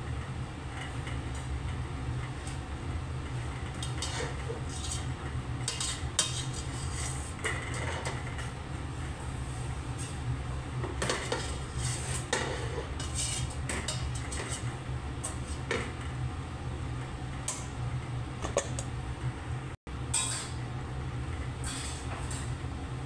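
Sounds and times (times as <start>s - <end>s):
metal spoon scraping pot: 3.8s - 7.9s, 11.0s - 15.7s.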